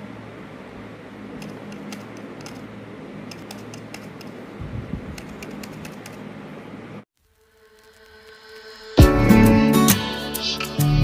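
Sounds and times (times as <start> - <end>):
steady low hum: 0.0 - 7.1.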